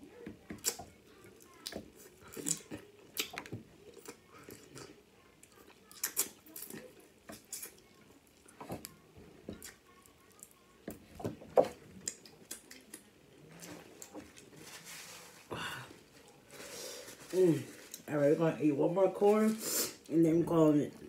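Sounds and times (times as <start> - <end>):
napkin rustling: 13.8 - 15.5.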